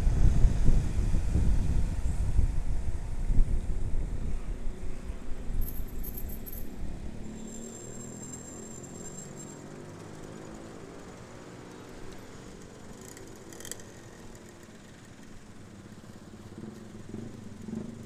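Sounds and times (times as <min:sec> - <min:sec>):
motorcycle engines idling: 0:04.6 - 0:18.0.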